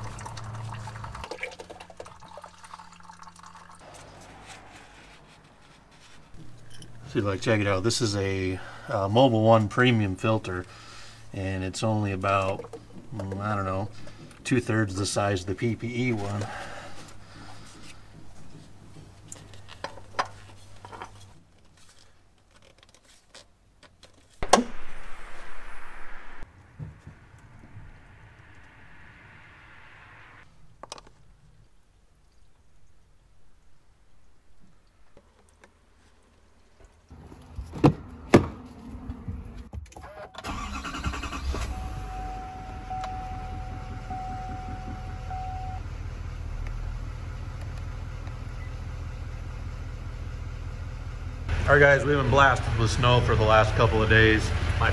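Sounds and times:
steady electronic tone: 0:03.8 - 0:06.9, 0:24.5 - 0:30.4
diesel engine cranking and idling: 0:03.8 - 0:20.9, 0:37.1 - 0:54.9
sharp knock: 0:24.4 - 0:25.1
loud thumps: 0:24.4 - 0:28.6
noisy hiss: 0:24.4 - 0:30.9.

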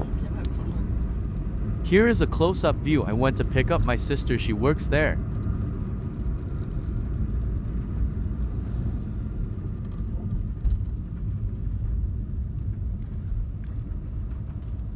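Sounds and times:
car engine and road rumble: 0:00.0 - 0:14.9.

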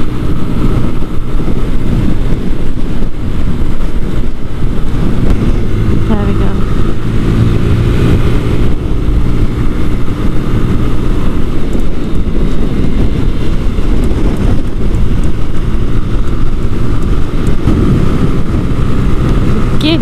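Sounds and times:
motorcycle engine running hard: 0:00.0 - 0:20.0
wind buffeting microphone: 0:00.0 - 0:20.0.

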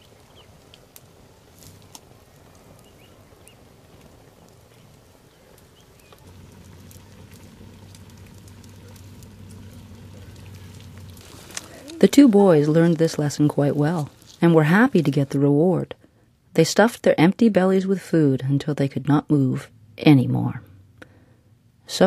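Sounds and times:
wood fire crackling and popping: 0:00.0 - 0:16.2
steady low hum: 0:00.6 - 0:16.6, 0:17.5 - 0:22.0.

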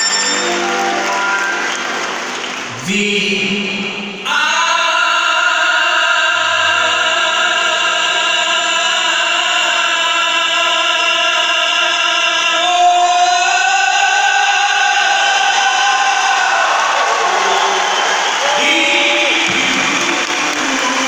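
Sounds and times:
band playing: 0:00.0 - 0:03.5.

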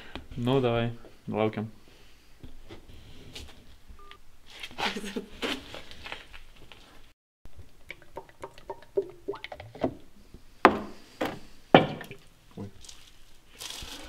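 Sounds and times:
liquid pouring and glugging: 0:07.6 - 0:09.9.

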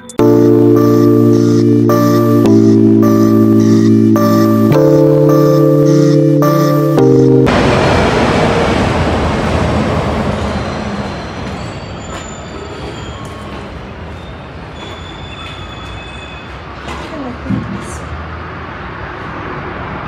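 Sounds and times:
low rumble of street traffic: 0:07.0 - 0:20.0
loud vehicle passing: 0:07.5 - 0:11.0.

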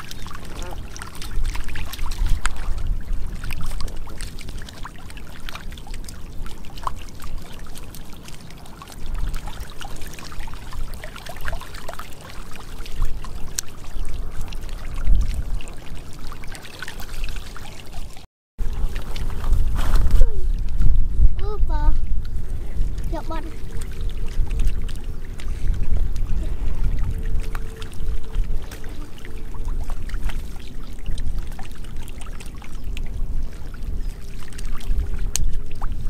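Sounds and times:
fish splashing in shallow water: 0:00.0 - 0:36.0.

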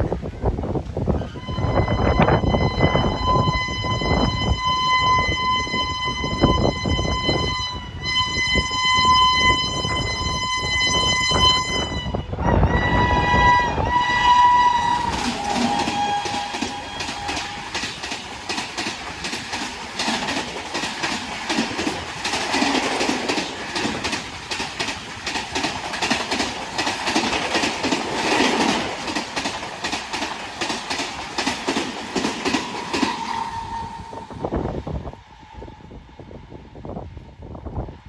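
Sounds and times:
locomotive horn: 0:01.2 - 0:18.0, 0:32.6 - 0:36.2
train wheels clickety-clack: 0:14.4 - 0:34.0.

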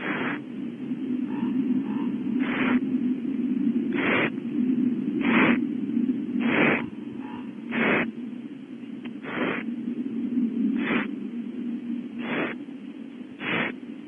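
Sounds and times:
owlet hissing begging call: 0:00.0 - 0:00.4, 0:02.4 - 0:02.8, 0:03.9 - 0:04.3, 0:05.2 - 0:05.6, 0:06.4 - 0:08.1, 0:09.2 - 0:09.7, 0:10.8 - 0:11.1, 0:12.2 - 0:12.6, 0:13.4 - 0:13.8
steady low hum: 0:00.0 - 0:14.0.

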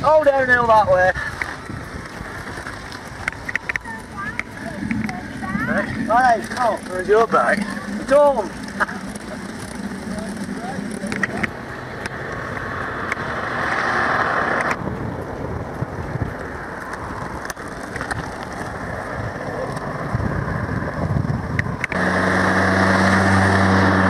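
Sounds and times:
road rumble: 0:00.0 - 0:24.0
wind rushing on microphone: 0:00.0 - 0:24.0
faint clicks: 0:01.3 - 0:05.2, 0:08.6 - 0:13.3.

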